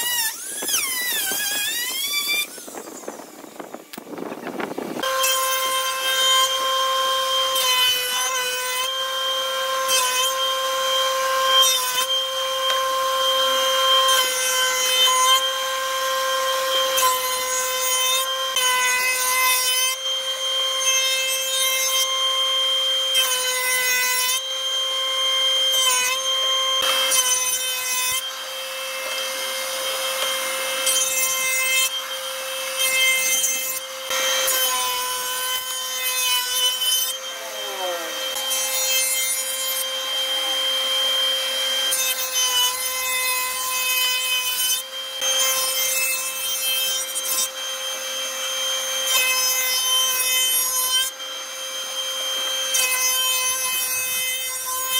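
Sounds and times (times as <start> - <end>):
cutter cutting wood: 0.0 - 54.9
spindle moulder whining: 36.7 - 38.8.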